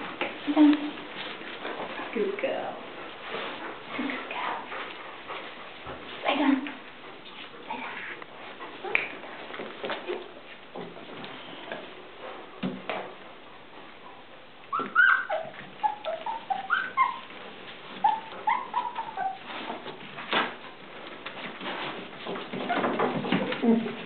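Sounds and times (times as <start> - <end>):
puppies squeaking and whining: 14.6 - 20.1, 22.3 - 23.4.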